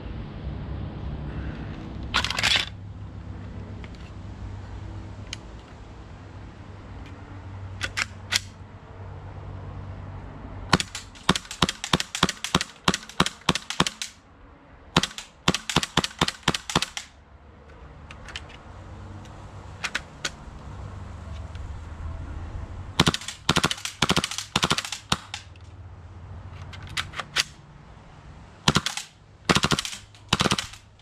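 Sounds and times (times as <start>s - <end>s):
mechanical handling clicks: 2.2s - 2.8s, 7.8s - 8.6s, 10.7s - 14.2s, 15.0s - 20.7s, 23.0s - 25.8s, 26.5s - 27.6s, 28.7s - 31.0s
airsoft pistol firing: 10.7s - 14.2s, 15.0s - 17.1s, 23.0s - 25.5s, 28.7s - 30.9s.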